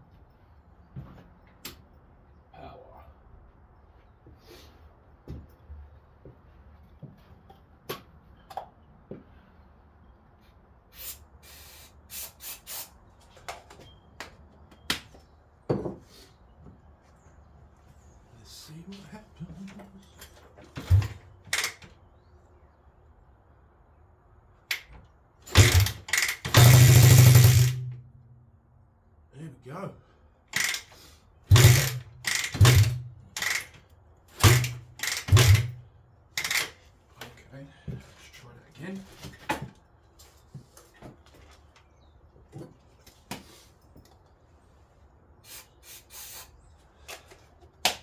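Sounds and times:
short hissing: 0:10.9 - 0:13.0, 0:45.4 - 0:46.6
clicks and knocks of handling parts: 0:19.7 - 0:22.0
motorcycle engine firing and running: 0:20.8 - 0:21.8, 0:25.4 - 0:28.0, 0:31.5 - 0:33.7, 0:34.4 - 0:35.8
engine kickstart kicks: 0:25.5 - 0:27.9, 0:31.5 - 0:33.7, 0:34.4 - 0:35.8.

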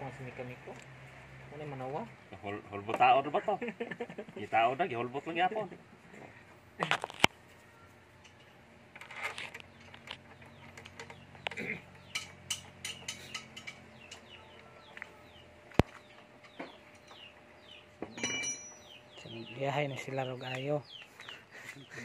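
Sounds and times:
chickens clucking and chirping: 0:09.5 - 0:22.0.

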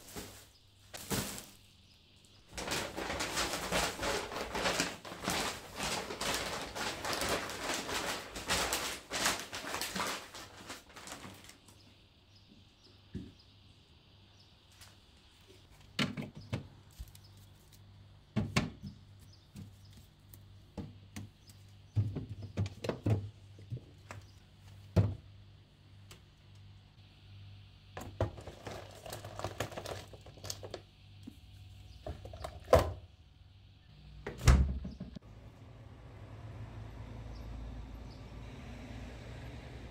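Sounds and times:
groceries clunking down: 0:00.0 - 0:01.7, 0:02.5 - 0:11.8, 0:28.0 - 0:33.0
rustling: 0:00.0 - 0:11.8.

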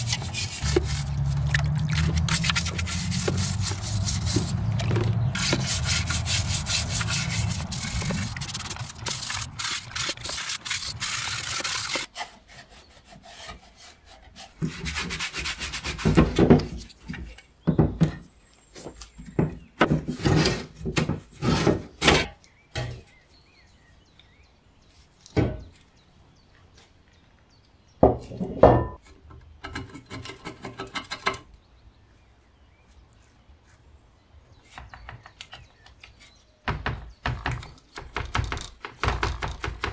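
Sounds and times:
brush scrubbing metal in liquid: 0:00.0 - 0:12.1
metal scraping and knocking on wood: 0:00.0 - 0:12.4, 0:14.5 - 0:23.1, 0:28.0 - 0:31.5, 0:36.7 - 0:39.9.

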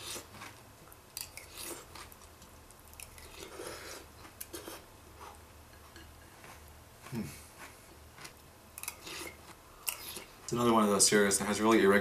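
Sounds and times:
person chewing cereal: 0:00.0 - 0:10.7.

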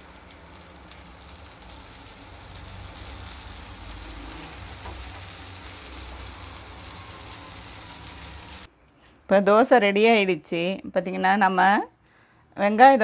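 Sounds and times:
batter sizzling on hot griddle: 0:00.0 - 0:08.7.

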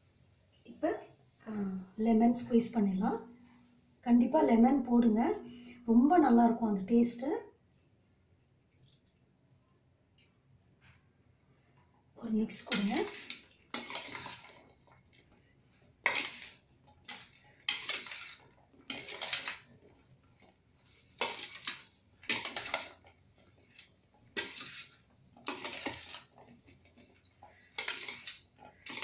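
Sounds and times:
metal spoon scraping metal bowl: 0:12.4 - 0:15.0, 0:15.7 - 0:29.0.

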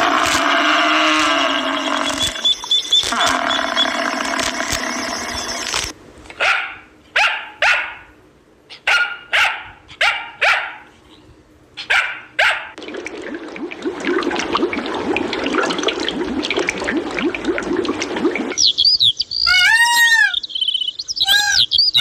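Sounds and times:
aquarium water bubbling: 0:00.0 - 0:05.7, 0:12.8 - 0:18.8
small dog barking: 0:06.4 - 0:10.9, 0:11.8 - 0:12.8.

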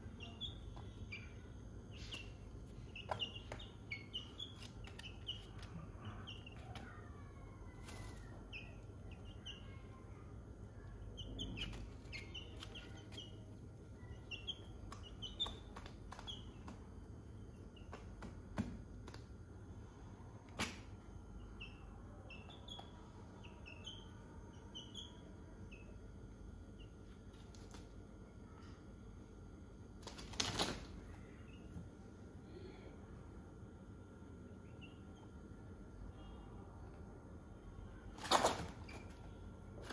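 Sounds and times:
chicks peeping: 0:00.0 - 0:18.2, 0:21.4 - 0:26.1.

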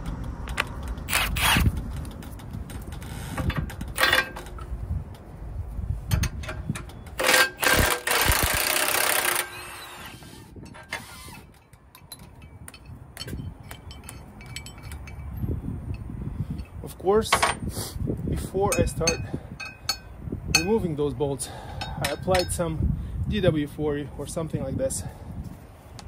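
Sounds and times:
impact wrench rattling: 0:00.1 - 0:04.8, 0:06.1 - 0:09.8, 0:10.6 - 0:17.6, 0:18.7 - 0:20.8, 0:21.6 - 0:22.6
light tool clinks: 0:11.6 - 0:16.8, 0:18.7 - 0:20.8, 0:21.8 - 0:22.6.

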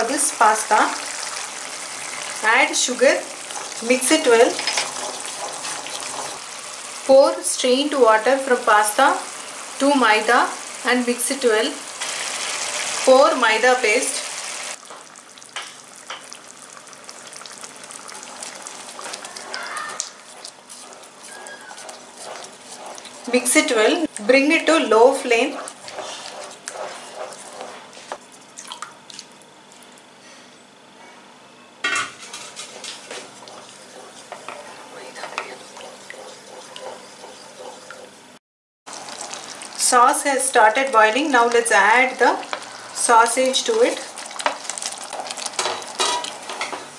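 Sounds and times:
tomato sauce bubbling and sizzling: 0:00.1 - 0:24.2, 0:32.3 - 0:37.9, 0:38.9 - 0:46.9
spatula stirring in a pan: 0:01.0 - 0:07.2, 0:17.1 - 0:28.6, 0:32.2 - 0:46.9.

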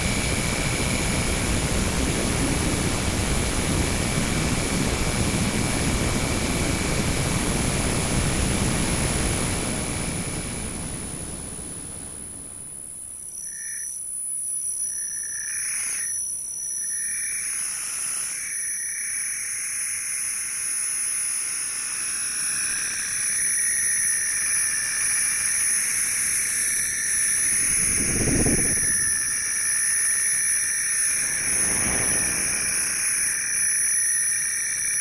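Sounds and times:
high sustained electronic tones: 0:13.1 - 0:35.0
hiss: 0:21.8 - 0:35.0
mid-pitched tone swell: 0:30.3 - 0:34.5
low swell: 0:31.0 - 0:33.6.

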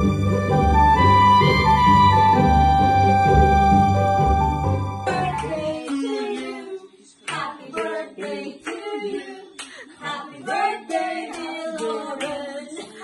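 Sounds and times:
hand clapping in rhythm: 0:05.1 - 0:13.0
voices singing together: 0:05.1 - 0:13.0.

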